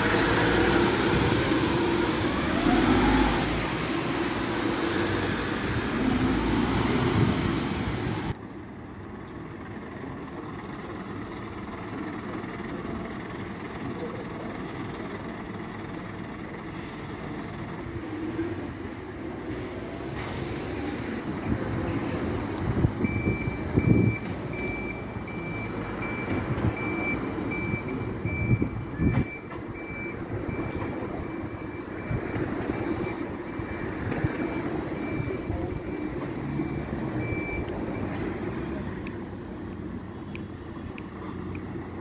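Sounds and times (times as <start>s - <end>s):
bus diesel engine running: 0.0s - 42.0s
reversing alarm beeping: 23.0s - 38.2s.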